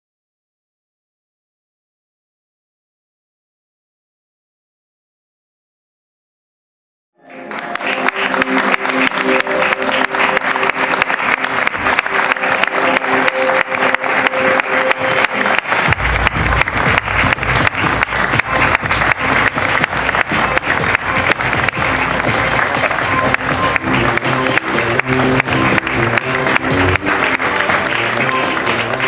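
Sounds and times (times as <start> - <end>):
audience applauding: 7.2 - 29.0
music with sustained chords: 7.2 - 29.0
deep bass beat: 14.9 - 29.0.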